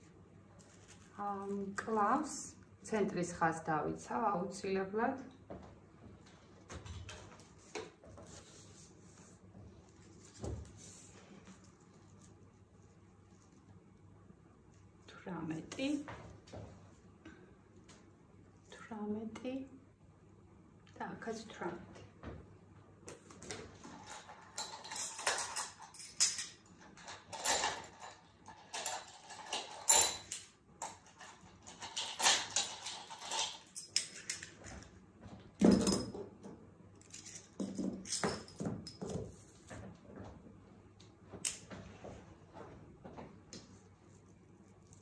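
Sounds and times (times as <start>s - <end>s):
paper and fabric rustling: 0.5s - 1.7s, 7.3s - 13.7s.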